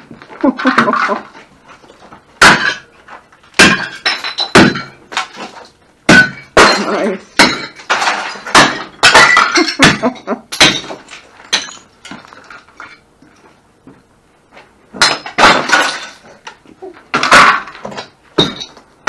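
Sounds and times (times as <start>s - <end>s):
shards clinking and breaking: 2.4s - 2.9s, 3.6s - 13.0s, 15.0s - 18.8s
metal bar smashing plates: 3.6s - 5.5s, 6.1s - 11.8s, 15.0s - 16.4s.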